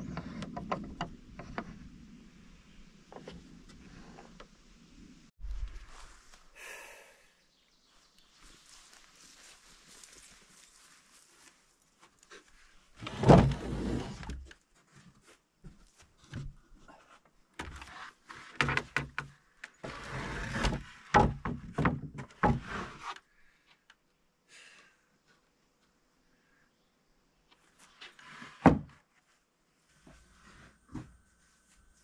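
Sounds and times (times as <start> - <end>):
wood thumping and scraping: 0.0 - 1.9, 13.0 - 23.2, 28.0 - 29.0, 30.0 - 31.2
wood knocking and bumping: 21.1 - 22.6.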